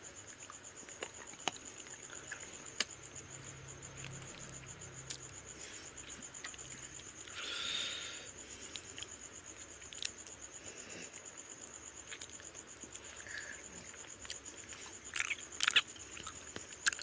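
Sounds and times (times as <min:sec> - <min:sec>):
person chewing with mouth clicks: 0:13.9 - 0:17.0.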